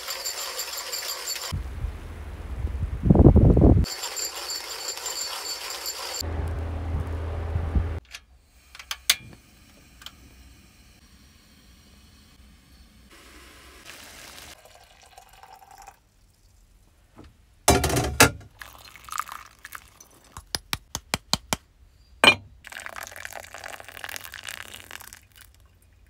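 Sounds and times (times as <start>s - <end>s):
water poured from kettle: 13.8s - 16.0s, 18.6s - 20.4s, 22.6s - 26.0s.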